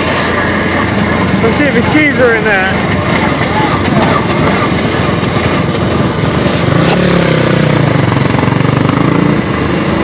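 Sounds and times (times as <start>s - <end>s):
dirt bike engine pulling away: 3.6s - 10.0s.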